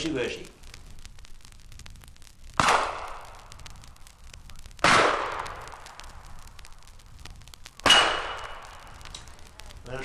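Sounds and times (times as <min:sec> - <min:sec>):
gunshots with echoing tail: 0:02.6 - 0:03.4, 0:04.8 - 0:05.8, 0:07.8 - 0:08.7.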